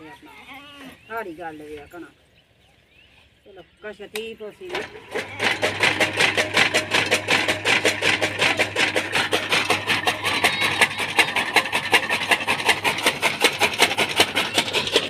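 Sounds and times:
chaff cutter blades chopping: 4.1s - 15.0s
motor low hum: 4.6s - 15.0s.

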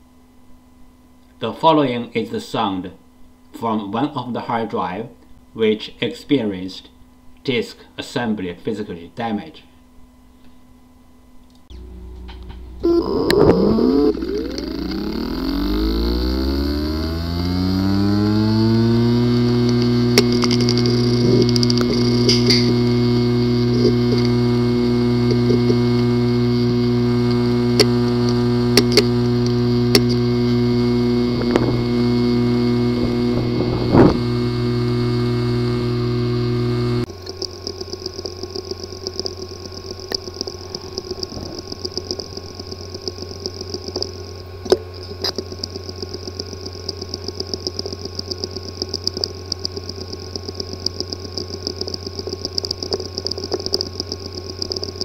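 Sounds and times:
hard drive humming: 9.8s - 55.0s
hard drive clicking: 11.6s - 55.0s.

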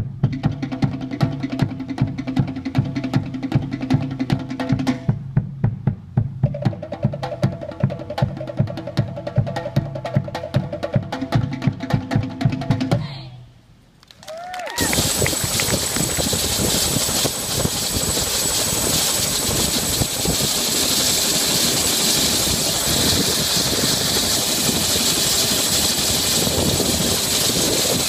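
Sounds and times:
helicopter engine and rotor running: 14.8s - 28.0s.

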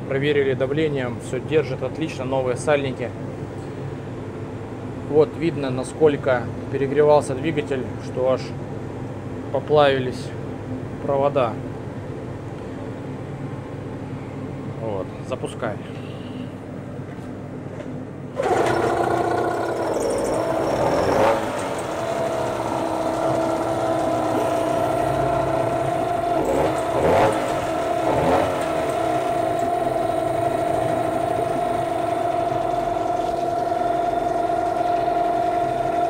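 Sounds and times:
outboard motor running unevenly: 18.4s - 36.0s.

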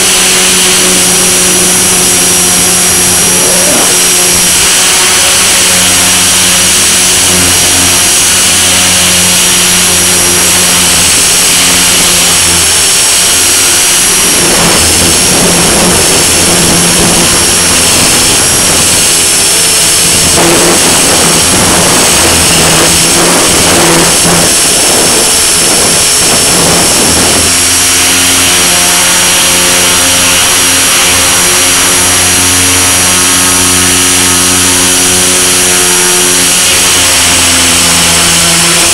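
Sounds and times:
rc helicopter motor whine: 0.0s - 38.9s
rushing air: 0.0s - 38.9s.

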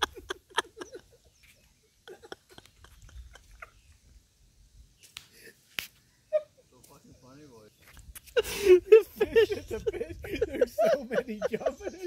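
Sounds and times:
stifled laughter: 0.0s - 3.9s, 8.4s - 12.0s.

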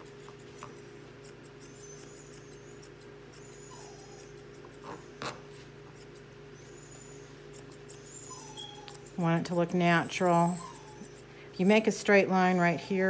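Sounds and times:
shears snipping hair: 0.0s - 12.8s
faint high squeaks: 7.9s - 11.2s.

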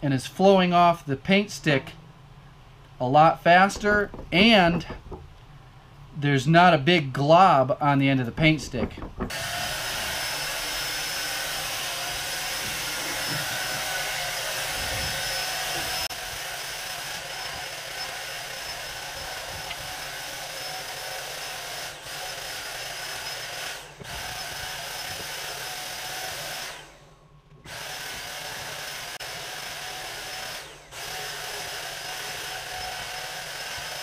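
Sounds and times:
electric paint sprayer hissing: 9.2s - 34.0s.

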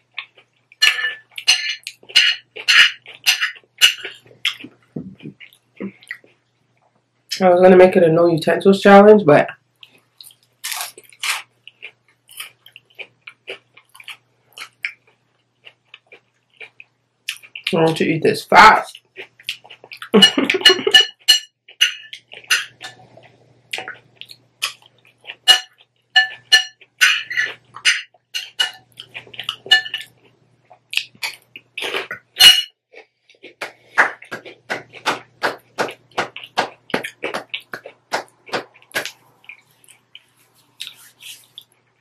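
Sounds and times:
spoon clinking on glass bowl: 0.8s - 4.1s, 20.2s - 23.0s, 25.4s - 28.9s, 29.7s - 30.1s, 32.4s - 32.7s
crunchy chewing: 9.8s - 17.7s, 21.7s - 32.3s, 33.0s - 41.8s.

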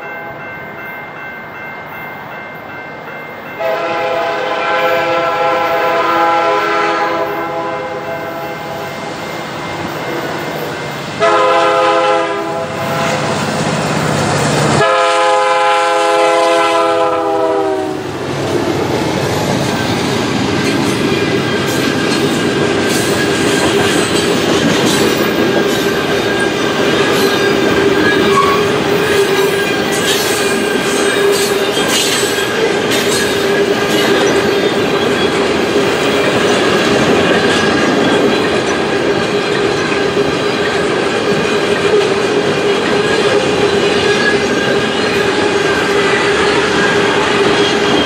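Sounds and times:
train wheels rumbling on rail: 2.2s - 48.0s
wheel squeal: 24.9s - 38.8s, 42.8s - 48.0s.

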